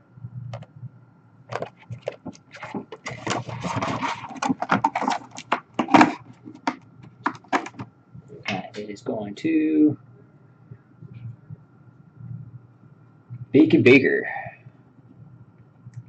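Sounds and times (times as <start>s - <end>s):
plastic case clicks and knocks: 1.5s - 7.9s.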